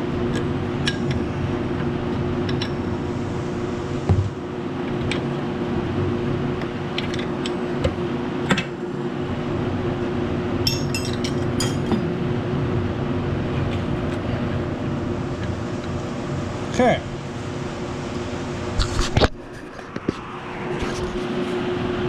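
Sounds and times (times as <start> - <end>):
background hum: 0.0 - 22.0
wrench clinking on metal: 10.6 - 12.0.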